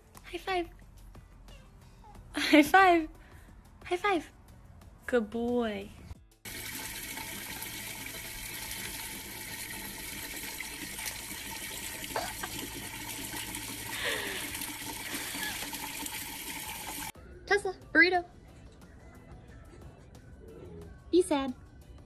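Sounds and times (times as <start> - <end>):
water running from a tap: 6.5 - 17.2.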